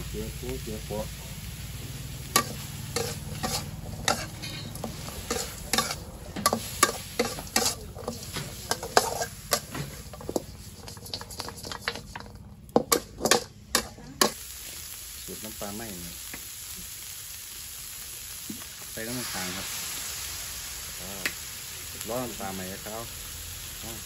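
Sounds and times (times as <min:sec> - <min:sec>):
food sizzling: 0:00.0 - 0:24.0
metal spatula clacking on wok: 0:02.4 - 0:14.4.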